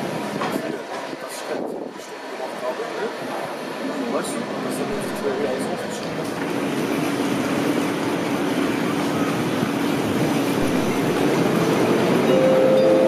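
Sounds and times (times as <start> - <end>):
train rumbling: 0.0 - 13.0
higher steady tone: 12.2 - 13.0.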